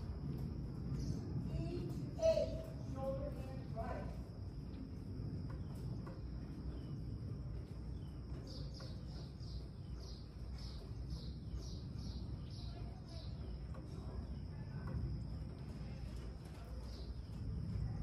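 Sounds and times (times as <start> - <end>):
low rumble: 0.0 - 18.0
bird chirping: 5.4 - 17.5.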